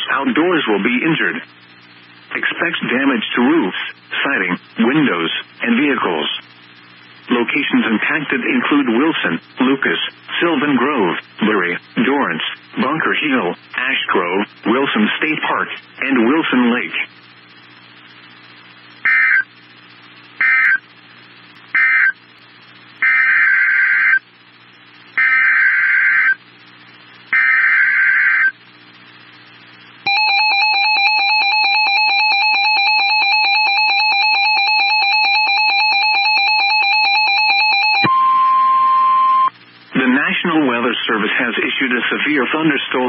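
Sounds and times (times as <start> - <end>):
harsh digital data bursts: 19.0 - 19.5, 20.4 - 20.9, 21.7 - 22.2, 23.0 - 24.2, 25.2 - 26.4, 27.3 - 28.6
two-tone attention signal: 30.1 - 39.5.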